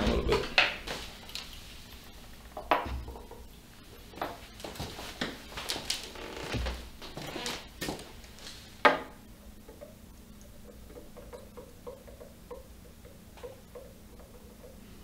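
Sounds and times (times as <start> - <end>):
faint even ticking: 9.5 - 15.0.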